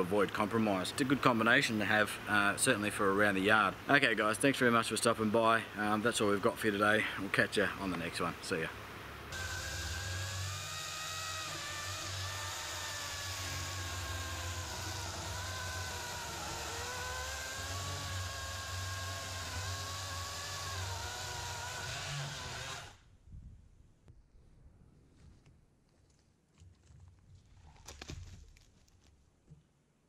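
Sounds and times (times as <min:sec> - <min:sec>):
chainsaw cutting wood: 0:09.3 - 0:23.0.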